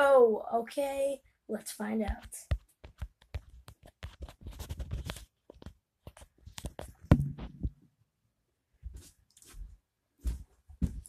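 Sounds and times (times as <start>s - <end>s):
scratching and rustling: 2.1s - 7.7s
sharp knock: 7.1s - 7.7s.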